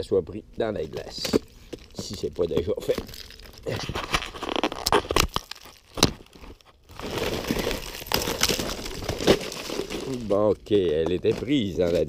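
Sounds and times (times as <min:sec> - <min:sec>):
sharp ice cracks: 0:02.8 - 0:10.3
ice-crusted snow crunching: 0:06.9 - 0:10.4.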